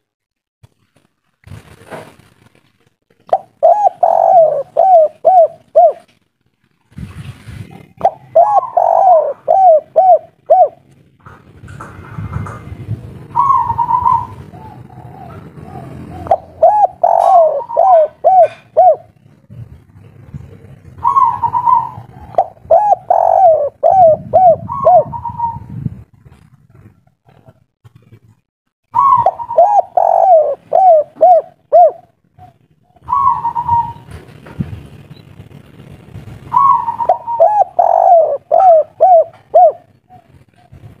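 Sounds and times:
dove cooing: 3.3 - 6.1, 7.7 - 10.9, 13.2 - 25.8, 29.0 - 34.1, 36.5 - 41.0
low rumble: 9.3 - 27.2, 31.6 - 41.0.

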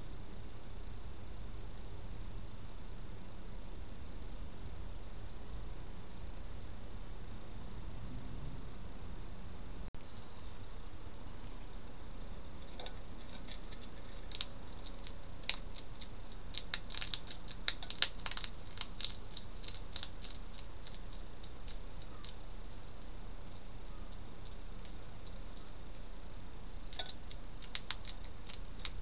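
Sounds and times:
hedgehog chewing and crunching: 12.6 - 29.0.

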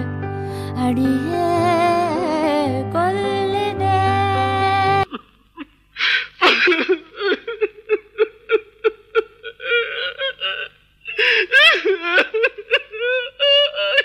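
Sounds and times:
woman singing: 0.0 - 5.1
man laughing or sobbing: 5.1 - 14.0.

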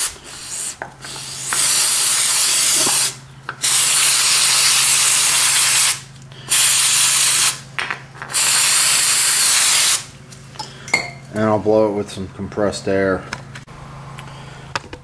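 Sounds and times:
aerosol spray hissing: 0.0 - 7.6, 8.4 - 10.1.

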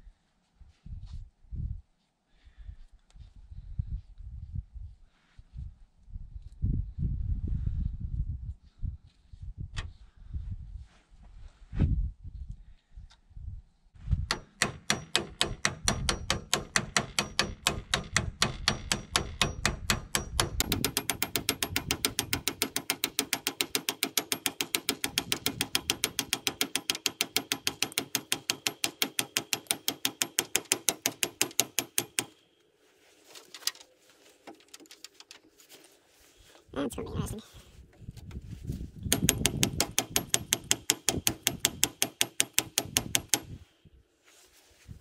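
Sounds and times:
hammer striking steel: 14.3 - 32.4, 39.1 - 43.5.

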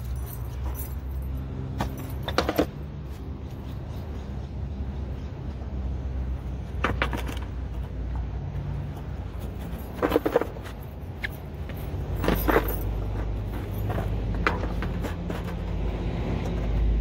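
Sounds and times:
skateboard clattering on pavement: 9.9 - 10.8
steady low rumble: 16.7 - 17.0.

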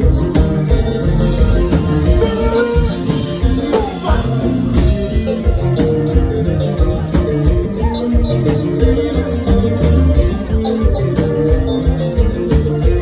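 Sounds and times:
drums: 0.0 - 13.0
electric bass guitar: 0.0 - 13.0
person singing: 1.9 - 9.9.

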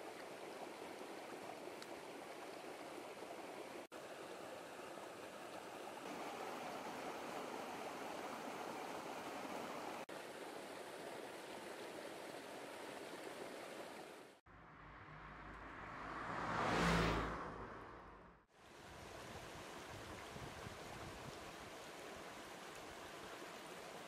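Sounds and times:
stream water over rocks: 0.0 - 14.4, 18.5 - 24.0
rising whoosh: 14.5 - 18.4.

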